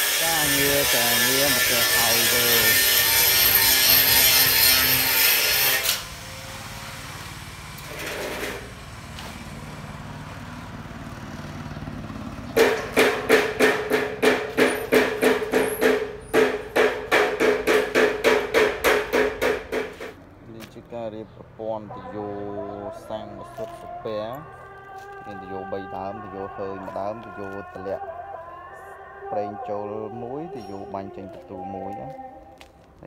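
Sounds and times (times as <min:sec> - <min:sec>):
power tool running: 0:00.0 - 0:08.8.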